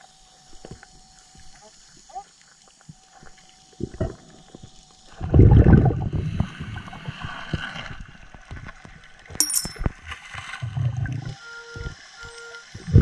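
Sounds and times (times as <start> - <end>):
diver's bubbles gurgling underwater: 5.2 - 8.1, 10.6 - 11.4.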